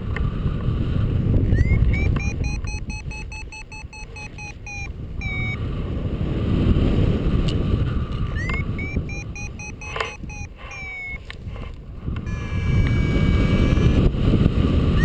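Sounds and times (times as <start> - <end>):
wind rushing over microphone: 0.0 - 15.0
variometer beeping: 1.5 - 5.6, 8.3 - 11.3, 12.2 - 14.1.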